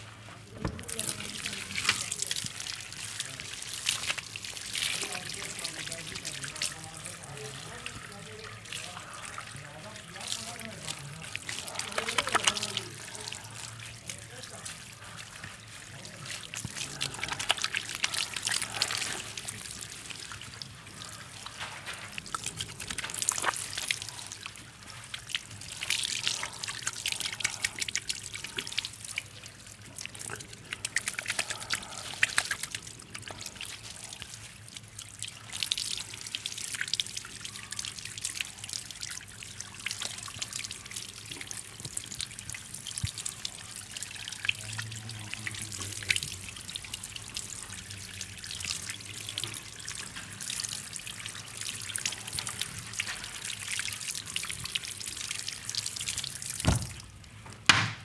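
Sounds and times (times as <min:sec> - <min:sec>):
water splashing from sprayer: 0:00.6 - 0:57.2
hand rubbing wet hair: 0:10.4 - 0:13.3.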